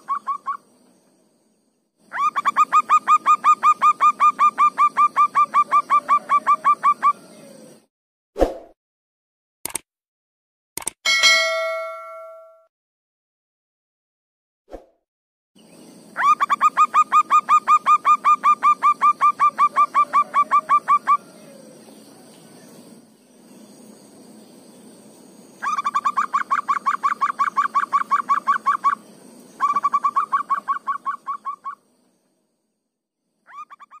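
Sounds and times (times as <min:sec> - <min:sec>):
dove cooing: 0:02.1 - 0:07.8, 0:16.2 - 0:22.3, 0:25.6 - 0:29.0, 0:29.6 - 0:31.8
thin high tone: 0:11.1 - 0:12.7.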